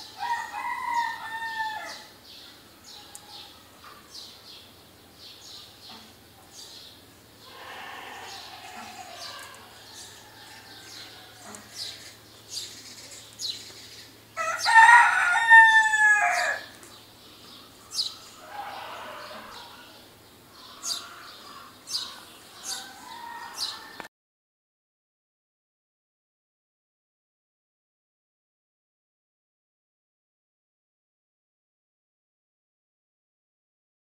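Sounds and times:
rooster crowing: 0:00.0 - 0:02.2, 0:07.4 - 0:12.1, 0:14.4 - 0:16.7, 0:18.2 - 0:20.0, 0:20.8 - 0:24.1.

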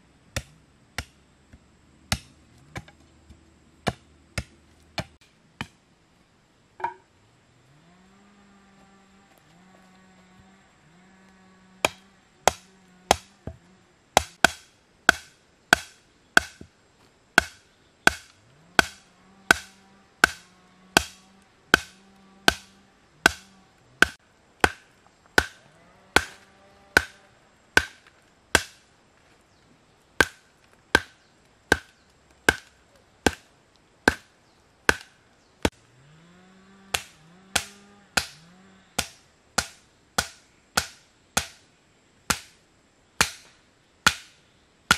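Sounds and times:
blade chopping wood: 0:00.4 - 0:05.8, 0:11.8 - 0:13.6, 0:14.2 - 0:16.7, 0:17.4 - 0:27.2, 0:27.8 - 0:28.8, 0:30.2 - 0:33.4, 0:34.1 - 0:34.3, 0:34.9 - 0:35.8, 0:36.9 - 0:38.4, 0:39.0 - 0:41.6, 0:42.3 - 0:42.6, 0:43.2 - 0:44.4.

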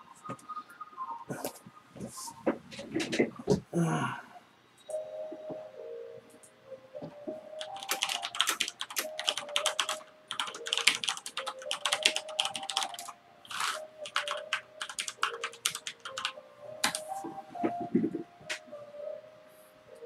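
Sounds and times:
fast typing on keyboard: 0:07.6 - 0:17.1.

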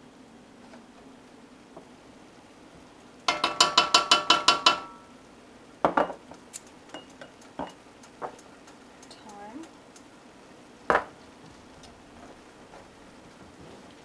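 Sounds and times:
utensil clicking in a pan: 0:03.2 - 0:05.0, 0:06.4 - 0:10.1
kitchenware tapping a metal pan: 0:03.3 - 0:05.0.

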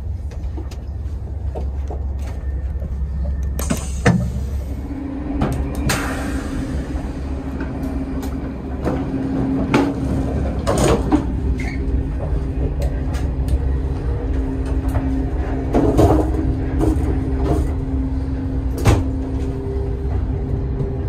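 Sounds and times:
train rumble and hum: 0:00.0 - 0:21.0
electric sliding door: 0:03.4 - 0:12.2.

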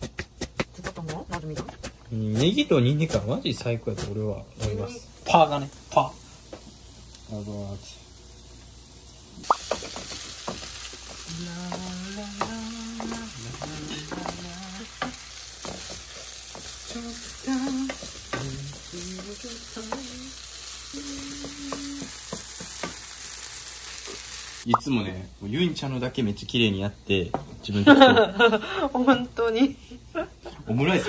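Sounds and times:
meat sizzling in a frying pan: 0:02.2 - 0:26.9
person humming: 0:11.2 - 0:15.2, 0:16.9 - 0:22.2.

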